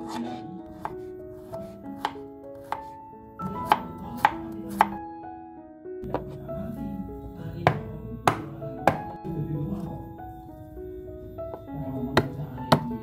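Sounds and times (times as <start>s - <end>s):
soft background music: 0.0s - 13.0s
knife chopping on wooden board: 0.1s - 3.0s, 3.6s - 5.0s, 7.7s - 9.2s.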